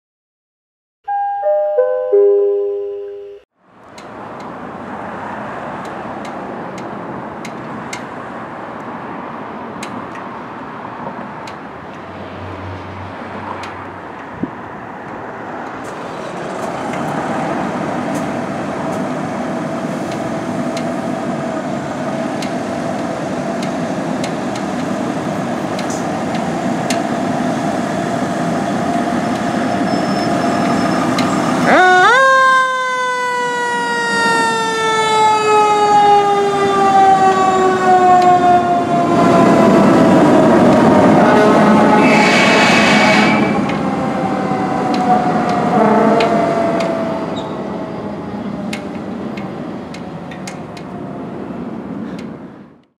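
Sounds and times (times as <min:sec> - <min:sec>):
descending chime: 0:01.1 - 0:03.4.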